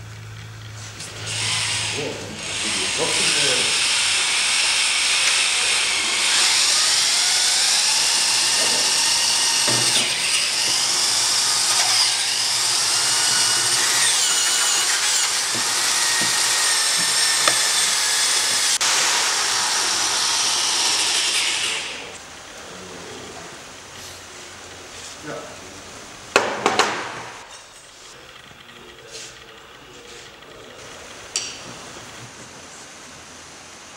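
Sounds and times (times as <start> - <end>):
power drill cutting plastic pipe: 1.1 - 22.1.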